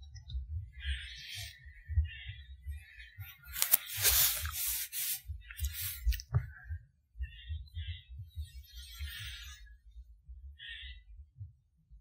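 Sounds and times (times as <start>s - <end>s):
leaves and stems rustling: 3.5s - 6.1s.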